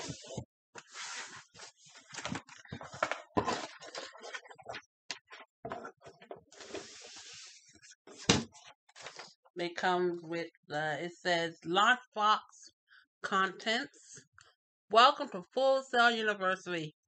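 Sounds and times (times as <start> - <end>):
cardboard and paper rustling: 0.0 - 9.4.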